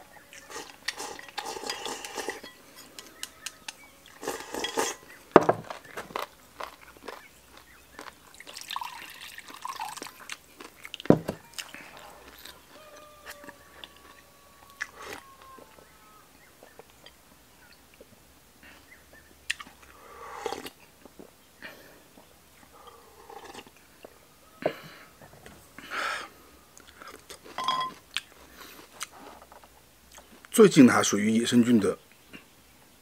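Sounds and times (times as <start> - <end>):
person chewing: 0.0 - 15.9, 19.4 - 24.9, 26.8 - 30.3.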